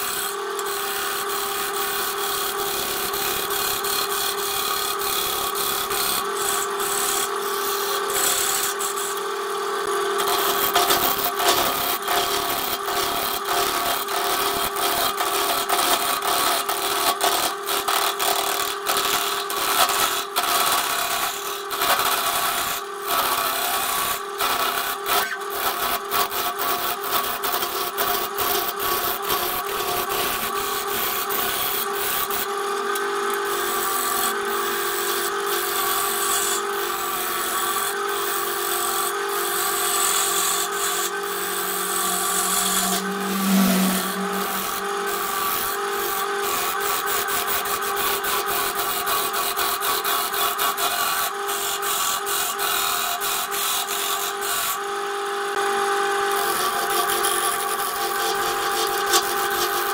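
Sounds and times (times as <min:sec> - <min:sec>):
lathe motor whine: 0:00.0 - 0:49.2, 0:51.4 - 0:59.9
gouge cutting spinning wood: 0:00.0 - 0:59.9
low hum: 0:41.1 - 0:45.6.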